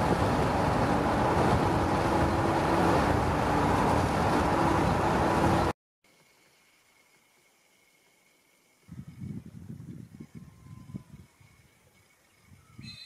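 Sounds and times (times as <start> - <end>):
road and engine noise in car: 0.0 - 5.7.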